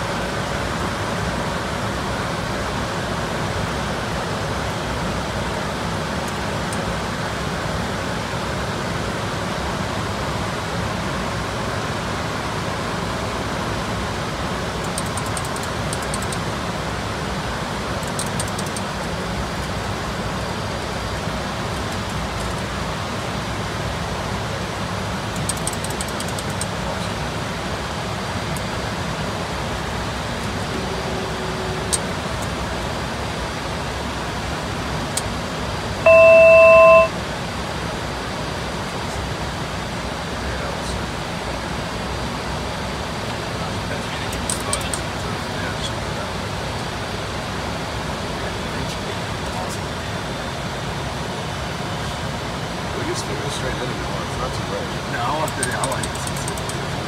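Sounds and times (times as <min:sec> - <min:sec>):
jet cockpit rushing noise: 0:25.2 - 0:27.4, 0:28.2 - 0:34.0, 0:36.0 - 0:37.2, 0:52.8 - 0:57.0
electronic cockpit alert tone: 0:30.6 - 0:32.6, 0:36.0 - 0:37.2.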